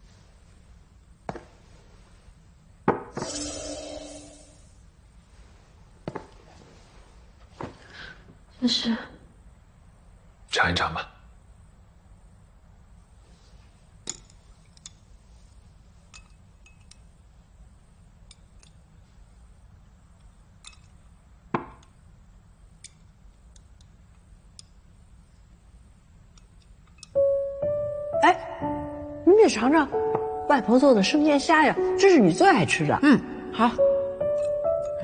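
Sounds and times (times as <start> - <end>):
chopsticks and dishes clinking: 16.1 - 17.1
music: 27.2 - 35.0.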